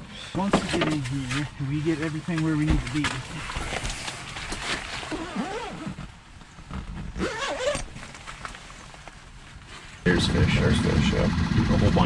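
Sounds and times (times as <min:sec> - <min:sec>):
rustling of clothing and fabric: 0:00.2 - 0:10.1
zipper-like rasp: 0:04.8 - 0:06.0, 0:07.2 - 0:08.0
short squeaky gliding sounds: 0:07.2 - 0:07.9.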